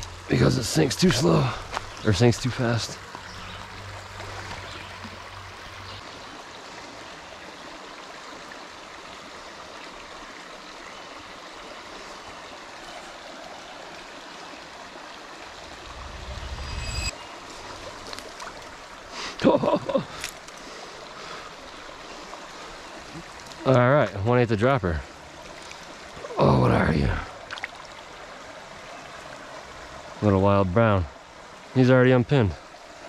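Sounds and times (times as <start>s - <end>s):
creek water running over stones: 0.0s - 33.0s
low rumble: 15.6s - 17.1s.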